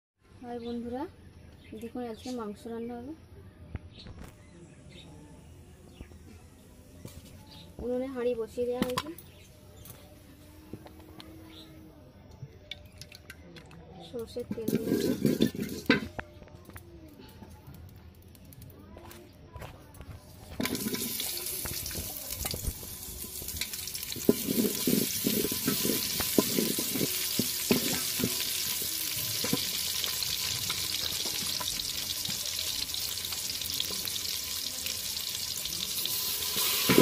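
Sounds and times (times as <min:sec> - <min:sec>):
wooden spatula scraping pot: 0:14.5 - 0:16.1, 0:20.6 - 0:21.3, 0:24.2 - 0:28.8
vegetables sizzling in hot oil: 0:20.6 - 0:37.0.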